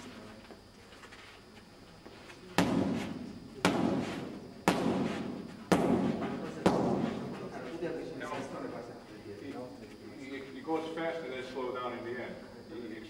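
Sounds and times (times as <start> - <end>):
hand strikes on striking pad: 2.6 - 7.2.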